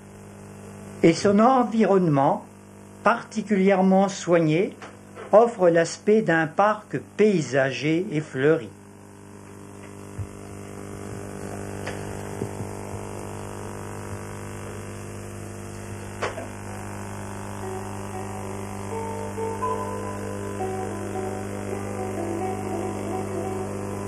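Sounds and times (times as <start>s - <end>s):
electrical mains hum: 0.0s - 24.0s
faint music notes: 17.6s - 24.0s.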